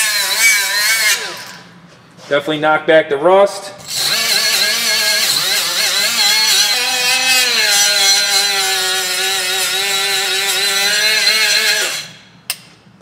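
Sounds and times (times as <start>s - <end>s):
abrasive disc scouring rusty metal: 3.8s - 12.1s
die grinder motor whine: 3.8s - 12.2s.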